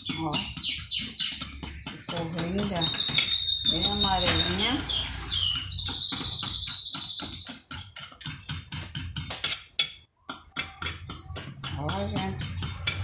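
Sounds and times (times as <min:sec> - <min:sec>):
high scratchy chirping: 0:00.0 - 0:08.6, 0:09.4 - 0:13.0
fork clicking against plate: 0:07.6 - 0:13.0.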